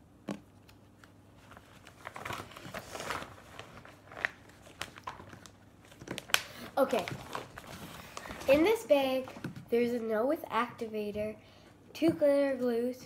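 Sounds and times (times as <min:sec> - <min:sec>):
paper bag crinkling and rustling: 0:00.9 - 0:09.5.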